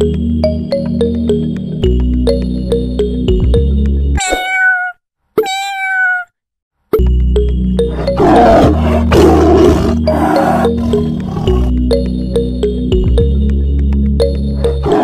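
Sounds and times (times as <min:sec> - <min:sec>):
background music with steady beat: 0:00.0 - 0:04.2, 0:08.6 - 0:15.0
tiger roar: 0:07.9 - 0:11.8, 0:14.6 - 0:15.0.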